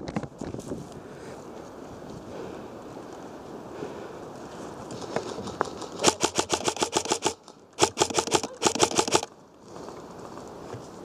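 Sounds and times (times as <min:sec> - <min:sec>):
airsoft gun firing bursts: 0:06.0 - 0:09.3.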